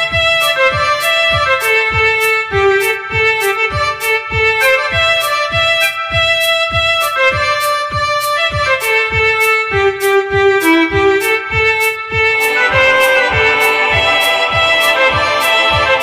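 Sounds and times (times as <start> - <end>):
fiddle melody: 0.0 - 16.0
folk metal music: 0.0 - 16.0
steady drum beat: 12.3 - 16.0.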